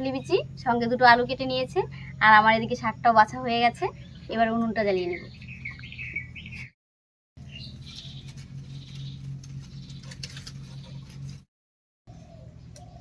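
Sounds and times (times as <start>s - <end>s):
steady low hum: 0.0s - 6.7s, 7.4s - 11.4s
faint bird chirps: 5.0s - 6.7s.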